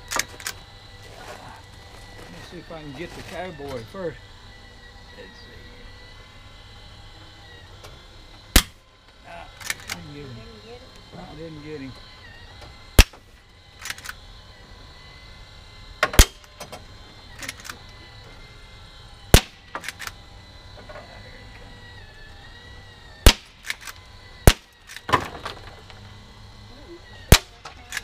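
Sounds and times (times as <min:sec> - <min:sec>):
air rifle shots: 0:08.5 - 0:08.8, 0:13.0 - 0:13.2, 0:16.0 - 0:16.5, 0:19.3 - 0:20.0, 0:23.2 - 0:25.3, 0:27.3 - 0:28.0.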